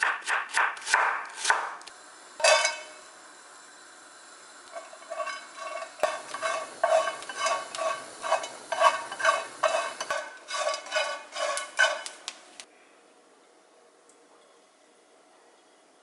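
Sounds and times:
anchovies rustling in a pan: 4.7 - 12.6.

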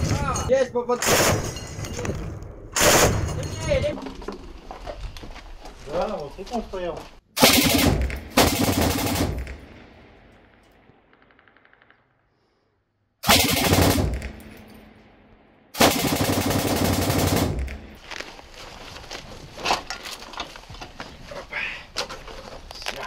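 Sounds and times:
gunfire echo: 2.7 - 3.4, 7.4 - 12.2, 13.2 - 18.0
machine gun bursts: 13.2 - 14.3, 15.8 - 17.8.

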